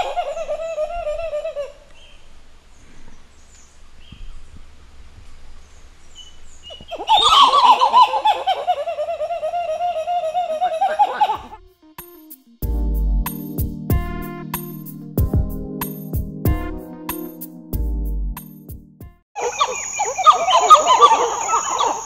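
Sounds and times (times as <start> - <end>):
monkey gobbling calls: 0.0 - 1.9, 6.7 - 11.6, 19.4 - 22.0.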